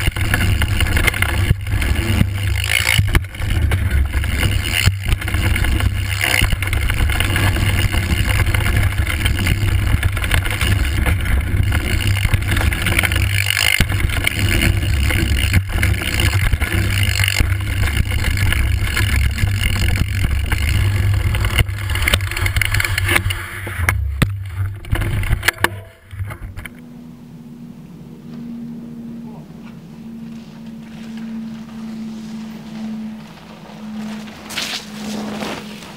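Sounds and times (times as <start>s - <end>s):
bike knocks and rattles: 0.0s - 26.8s
faint steady hum: 0.0s - 35.9s.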